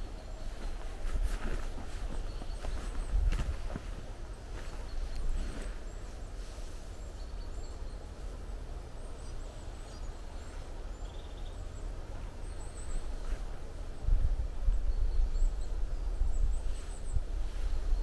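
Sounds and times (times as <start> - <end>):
footsteps on mossy forest floor: 0.0 - 5.9.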